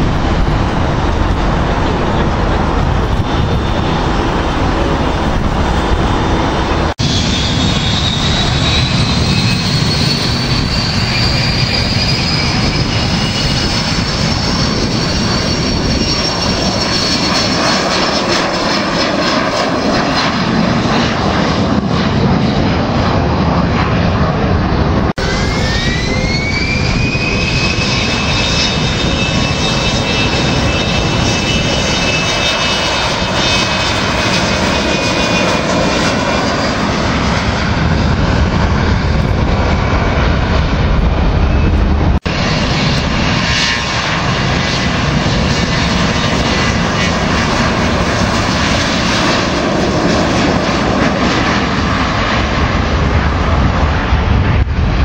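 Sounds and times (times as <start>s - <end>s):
jet engines spooling up: 0.0s - 55.0s.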